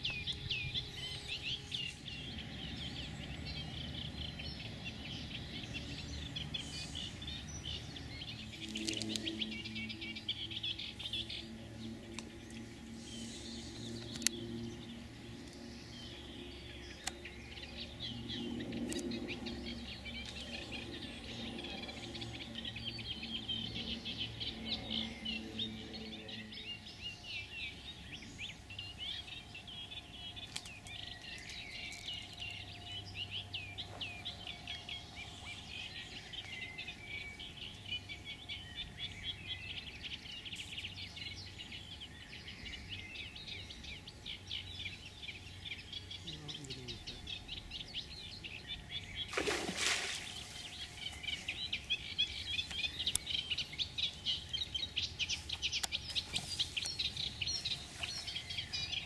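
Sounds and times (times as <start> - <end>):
small birds chattering song: 0.0 - 59.0
splash in water: 49.3 - 50.8.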